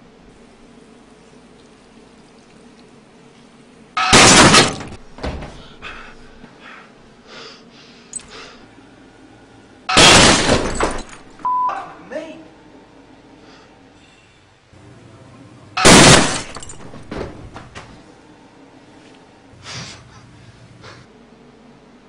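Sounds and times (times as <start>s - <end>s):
loud sudden noise bursts: 15.8s - 16.6s.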